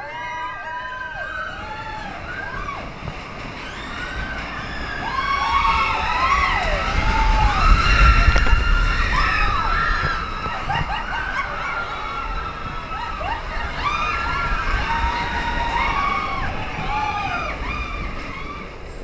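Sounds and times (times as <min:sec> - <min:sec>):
riders screaming: 0:00.0 - 0:18.9
roller coaster rumbling on track: 0:00.0 - 0:19.0.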